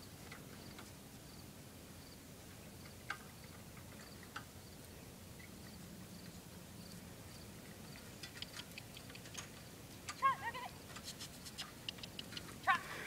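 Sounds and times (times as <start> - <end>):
insect chirping: 2.8 - 9.3
faint clicks: 11.0 - 12.6.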